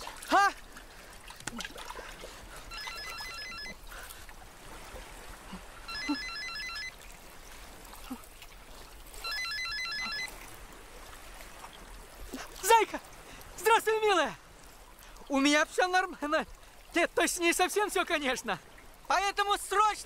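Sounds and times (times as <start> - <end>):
water trickling: 0.0 - 20.0
mobile phone ringtone beeps: 2.7 - 3.8, 5.8 - 7.0, 9.2 - 10.4.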